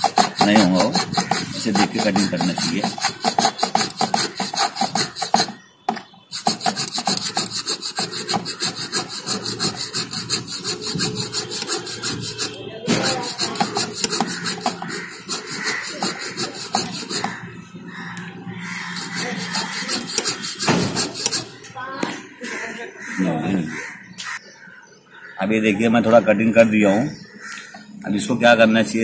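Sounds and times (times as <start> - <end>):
hand saw rasping: 0.0 - 5.6, 6.3 - 17.4, 18.6 - 21.5.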